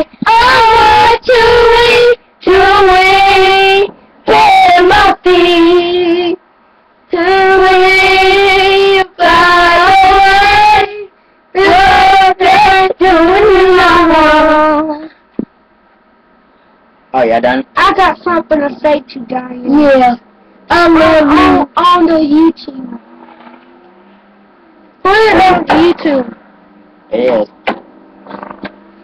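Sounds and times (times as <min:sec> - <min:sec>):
boy singing loudly: 0:00.0 - 0:06.3, 0:17.8 - 0:23.0, 0:25.1 - 0:26.3.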